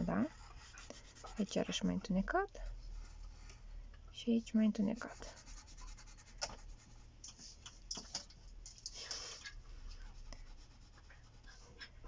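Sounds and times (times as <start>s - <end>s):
pencil scratching on paper: 0.0s - 2.0s, 4.8s - 7.0s.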